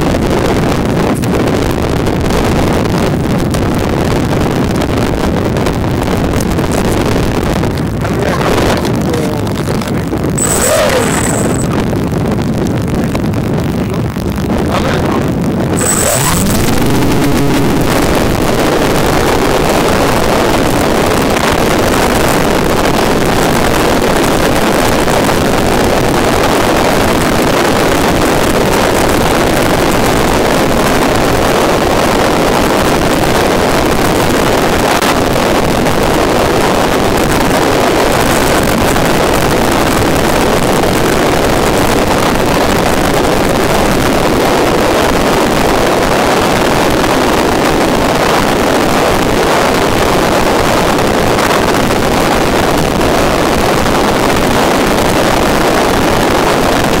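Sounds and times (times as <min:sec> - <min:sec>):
electric motor and propeller noise: 0:10.4 - 0:11.7
wind rushing: 0:14.6 - 0:20.8.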